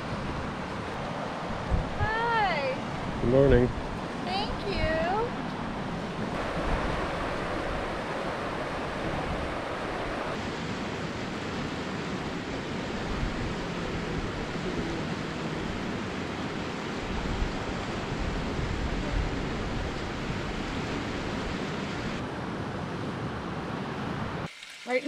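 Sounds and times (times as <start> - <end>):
wind buffeting microphone: 0.0 - 10.5
river rapids rushing: 3.9 - 18.7.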